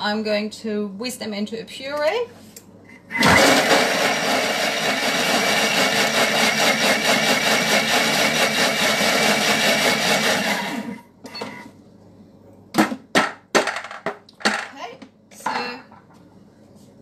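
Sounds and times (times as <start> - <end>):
food processor whirring: 3.1 - 11.0.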